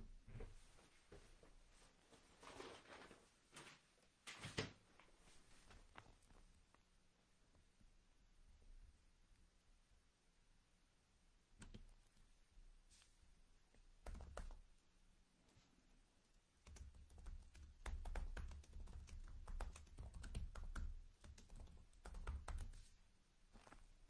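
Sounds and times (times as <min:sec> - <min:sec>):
computer keys clicking: 0:11.6 - 0:12.2, 0:14.0 - 0:14.6, 0:16.6 - 0:22.8.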